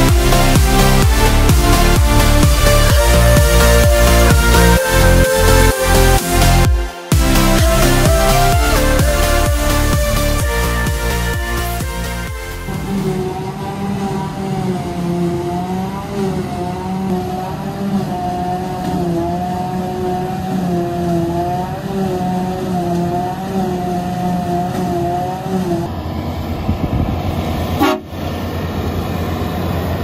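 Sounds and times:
tractor engine thrumming: 0.0s - 17.4s
forage harvester droning: 0.0s - 30.0s.

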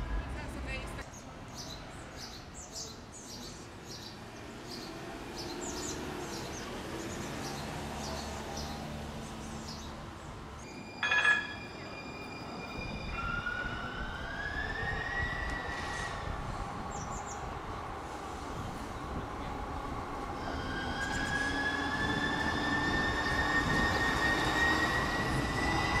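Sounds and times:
birds chirping: 0.8s - 14.7s
streetcar motor whine: 4.4s - 26.0s
streetcar bell strike: 10.7s - 12.1s.

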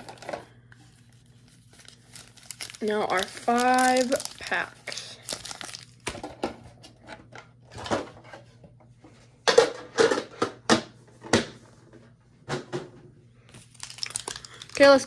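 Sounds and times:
foil packs crinkling: 0.0s - 6.4s, 13.5s - 15.0s.

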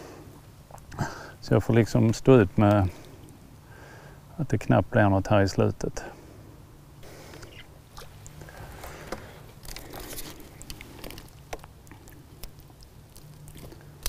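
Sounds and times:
low steady hum: 0.0s - 14.0s
hands handling fishing line: 7.3s - 13.9s.

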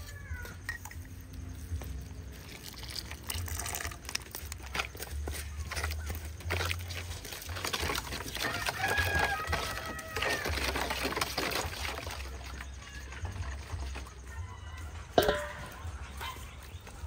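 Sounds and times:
rooster crowing: 8.3s - 11.0s
spoon stirring in metal bowl: 15.2s - 16.1s.

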